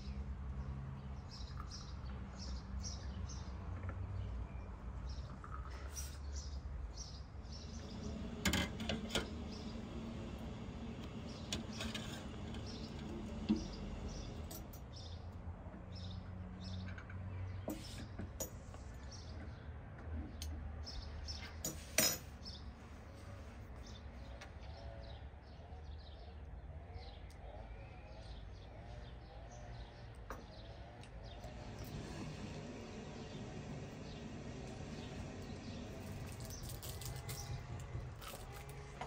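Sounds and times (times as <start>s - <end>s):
birds chirping: 4.2s - 18.2s, 23.8s - 39.0s.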